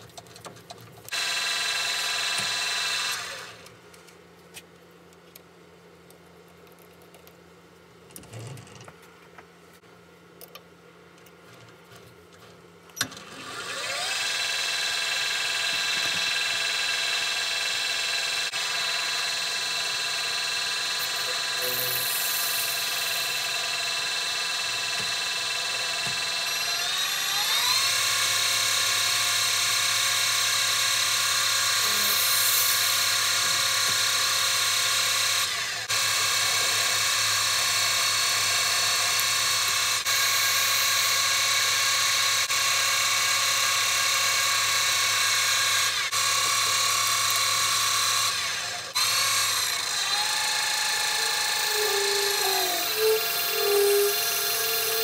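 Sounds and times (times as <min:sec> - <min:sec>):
metal lathe motor whine: 0:13.1 - 0:55.0.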